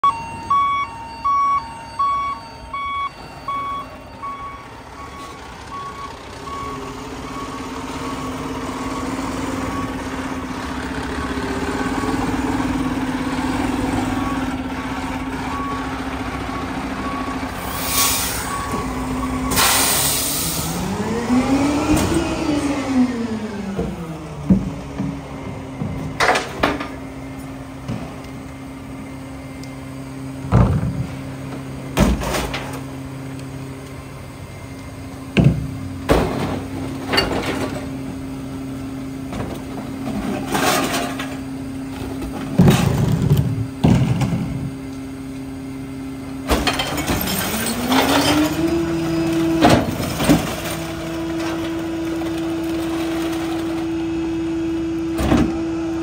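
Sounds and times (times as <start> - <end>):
garbage truck diesel engine running: 0.0 - 56.0
trash banging into hopper: 31.9 - 32.8, 35.4 - 38.1, 39.3 - 44.7, 46.5 - 53.8.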